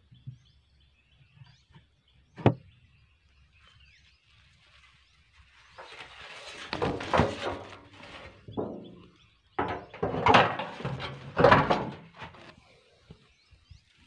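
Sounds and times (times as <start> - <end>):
metal rattling against wood: 5.8 - 12.5.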